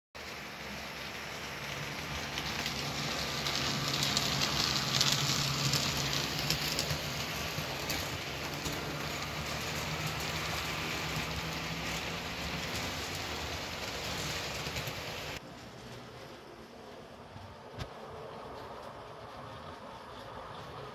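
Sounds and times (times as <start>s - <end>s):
model train motor hum: 0.2s - 15.4s
train wheels clicking on track: 0.2s - 20.9s.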